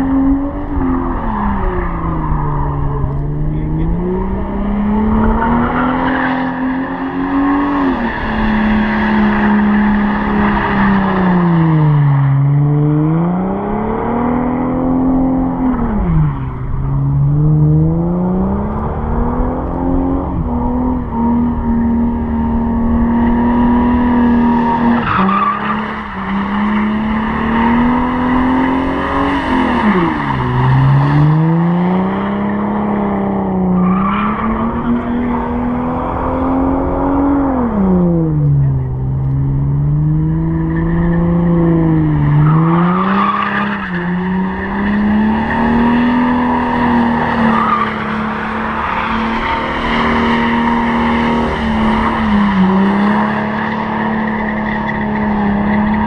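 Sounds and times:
tyres squealing on asphalt: 0:00.0 - 0:12.6, 0:20.7 - 0:37.3, 0:40.2 - 0:56.0
car engine revving high: 0:00.0 - 0:56.0.

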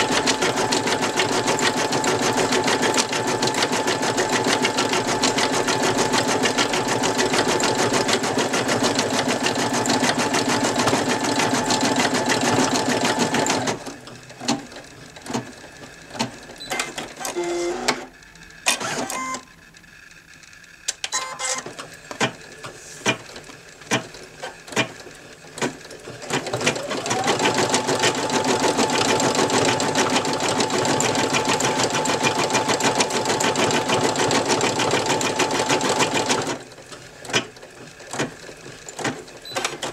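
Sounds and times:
embroidery machine stitching: 0:00.0 - 0:19.4, 0:21.0 - 0:39.9
machine clicks and clunks: 0:13.8 - 0:19.4, 0:20.8 - 0:26.9, 0:36.3 - 0:39.9.

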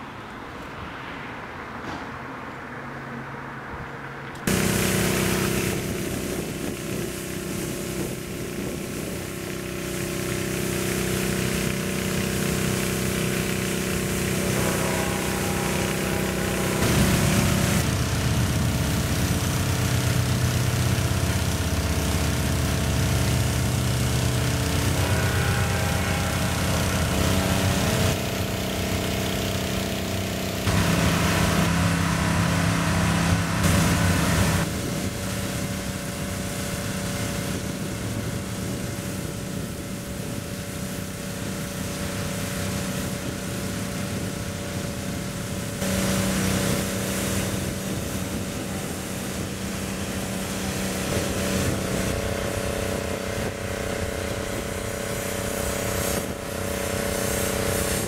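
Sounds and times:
small gasoline engine running: 0:04.4 - 0:58.0
water spray hissing on steel: 0:25.0 - 0:58.0.

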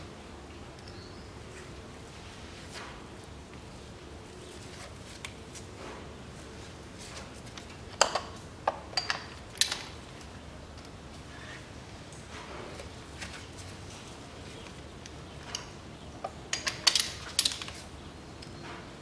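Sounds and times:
metal tool clicks: 0:16.5 - 0:17.8.

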